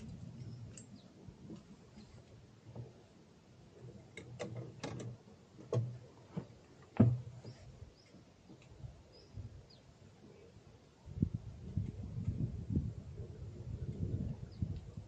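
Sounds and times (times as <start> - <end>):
knocks and clicks in a boat: 0.0 - 3.1, 3.8 - 8.8
faint bird chirps: 9.0 - 10.6.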